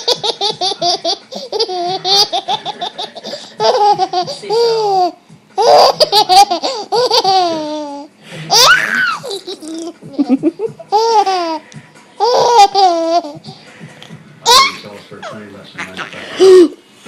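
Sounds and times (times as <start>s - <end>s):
baby laughing: 0.0s - 11.6s, 12.2s - 13.5s, 14.4s - 16.8s.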